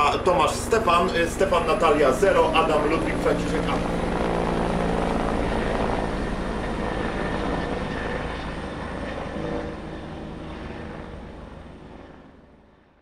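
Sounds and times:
steady rushing noise: 0.0 - 6.8
low hum: 0.0 - 8.9.

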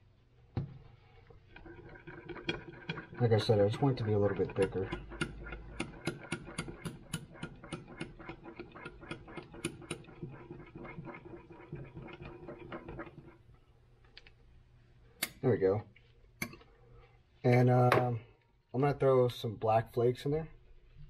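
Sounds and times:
knife scraping glass cup: 1.6 - 13.4.

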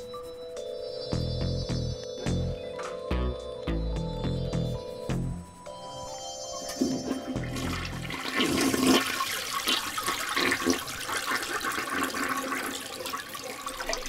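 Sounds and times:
toilet flushing: 6.8 - 14.0.

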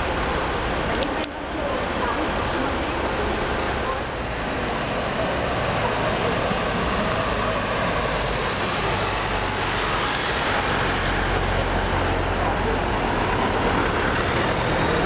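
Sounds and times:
city street traffic: 0.0 - 15.0
passing vehicles rumbling: 0.0 - 15.0.

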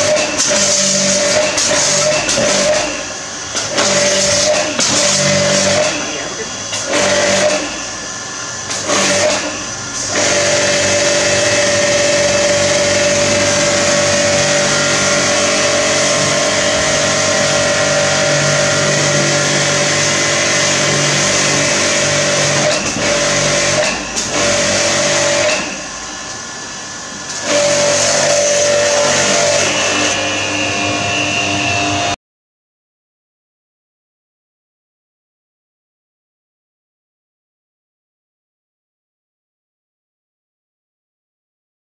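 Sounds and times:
pressure washer motor whining: 0.0 - 32.2
water jet hissing: 0.5 - 30.2.

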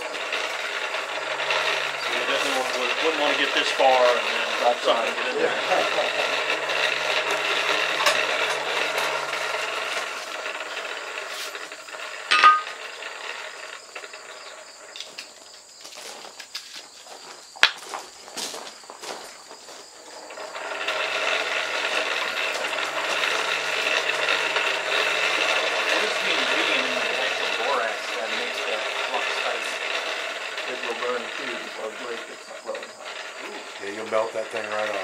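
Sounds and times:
forge blower droning: 0.0 - 35.0
sharp ringing clink: 12.3 - 12.7.

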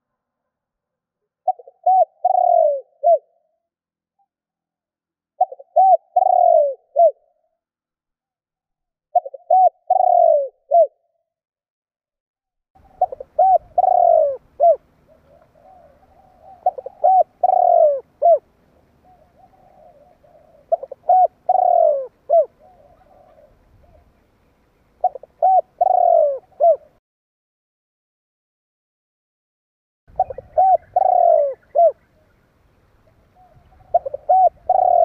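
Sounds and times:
dove cooing: 1.4 - 3.5, 5.4 - 7.4, 9.1 - 11.0, 12.8 - 24.2, 25.0 - 27.0, 30.1 - 32.4, 33.0 - 35.0.

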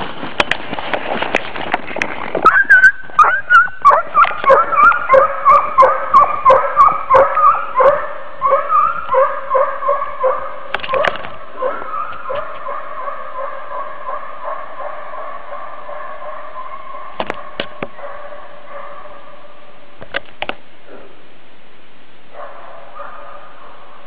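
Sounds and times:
rustle of brush and snow: 0.0 - 5.1
dog yelping: 2.4 - 13.8.

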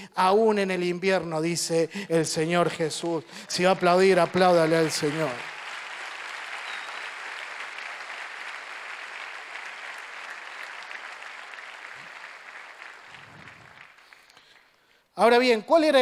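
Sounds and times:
audience applauding: 3.0 - 14.9.

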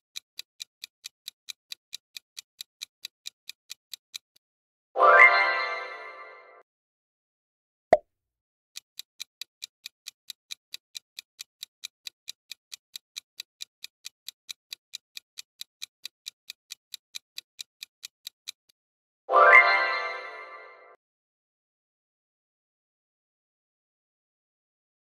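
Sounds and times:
clock ticking: 0.0 - 4.4, 8.8 - 18.8.

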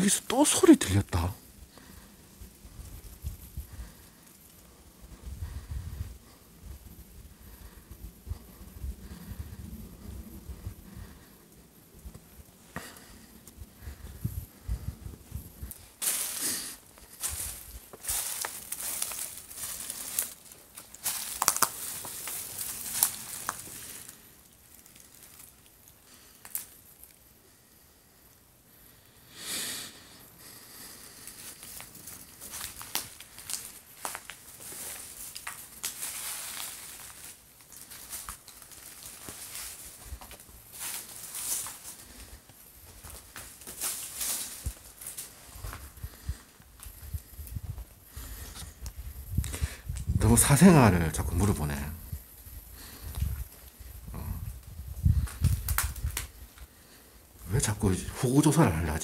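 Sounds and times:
twigs crackling underfoot: 15.4 - 27.3, 30.9 - 59.0
footsteps crunching on debris: 15.7 - 25.8, 31.2 - 48.6, 55.2 - 56.7
rustling: 15.7 - 27.2, 31.0 - 48.8.

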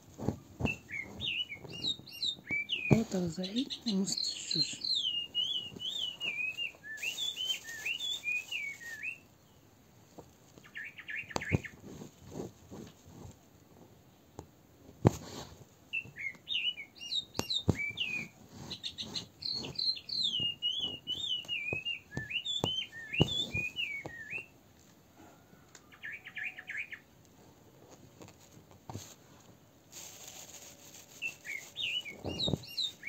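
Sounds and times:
songbird warbling and trilling: 0.7 - 9.0, 16.0 - 24.5.

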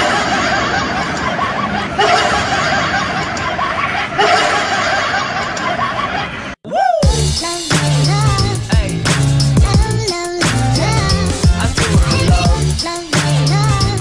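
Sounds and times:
high-pitched giggling laughter: 0.0 - 6.5.

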